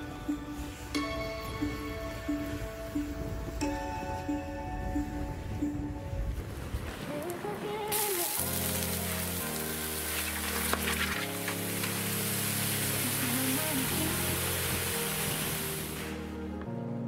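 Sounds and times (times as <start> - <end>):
background music: 0.0 - 17.0
water sizzling on melted plastic: 7.9 - 16.2.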